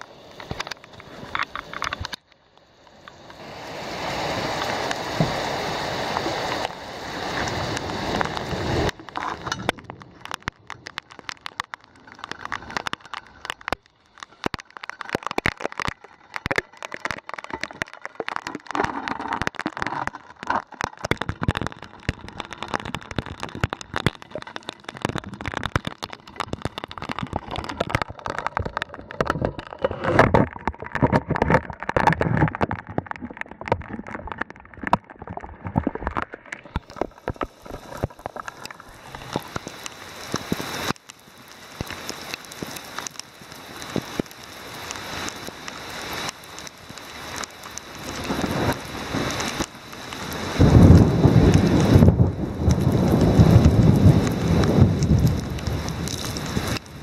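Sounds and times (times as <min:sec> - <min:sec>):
raindrops tapping near camera: 0:00.0 - 0:03.4, 0:04.2 - 0:57.0
heavy rain hiss: 0:00.0 - 0:19.4, 0:36.8 - 0:57.0.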